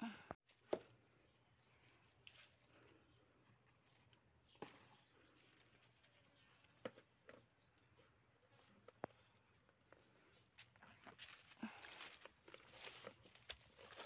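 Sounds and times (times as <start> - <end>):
leaves and stems brushing: 10.6 - 14.0.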